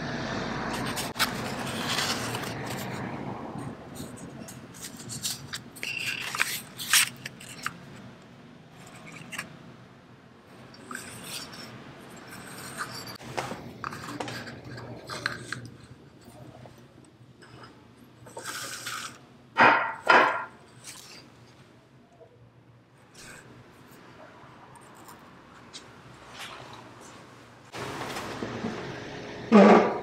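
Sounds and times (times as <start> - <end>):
paper cards scraping and rustling: 0.7 - 8.1, 8.7 - 9.6, 10.7 - 16.9, 18.3 - 19.2, 20.8 - 21.6.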